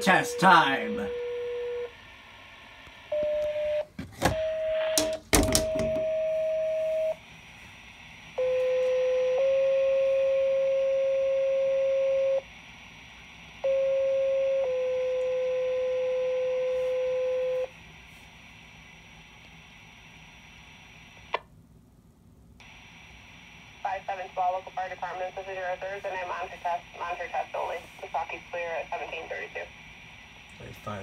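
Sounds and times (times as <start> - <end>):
steady radio tone: 0.0 - 2.4, 4.4 - 5.1, 22.6 - 31.0.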